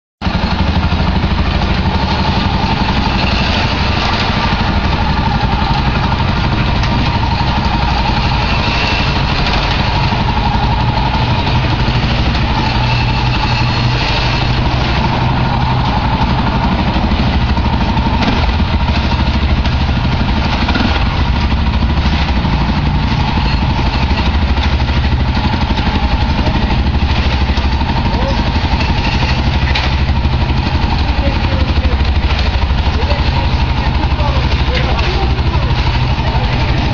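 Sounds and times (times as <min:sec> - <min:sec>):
engine running steadily: 0:00.2 - 0:36.9.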